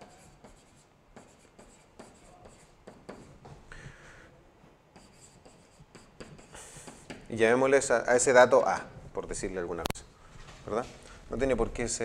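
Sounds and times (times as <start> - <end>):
pen tapping and scratching on screen: 0.0 - 3.6, 5.0 - 7.4.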